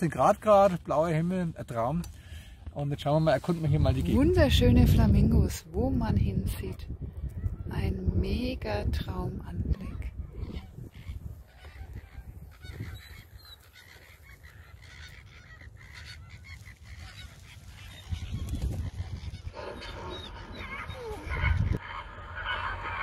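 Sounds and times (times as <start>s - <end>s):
wind rumble on microphone: 3.0s - 23.0s
flamingos calling: 9.8s - 23.0s.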